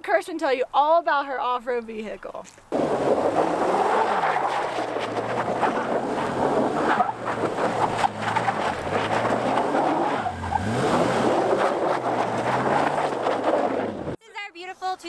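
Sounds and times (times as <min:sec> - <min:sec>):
tyre and road noise: 0:00.8 - 0:14.2
pickup truck engine: 0:02.7 - 0:14.2.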